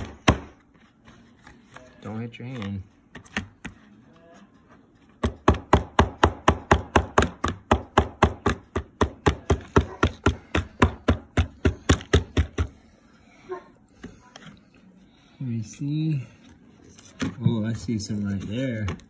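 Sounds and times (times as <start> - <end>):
tool hammering chalky block: 0.0 - 0.6, 5.2 - 12.8.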